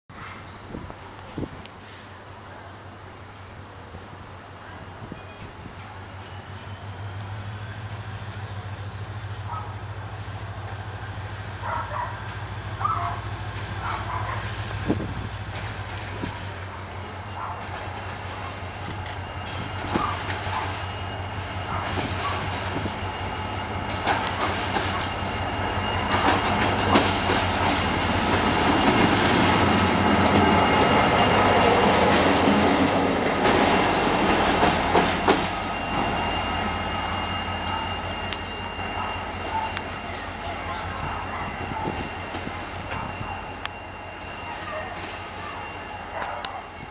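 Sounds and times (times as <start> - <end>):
high-pitched wheel squeal: 15.6 - 46.9
train wheels clacking over rail joints: 23.7 - 30.6, 31.8 - 36.2.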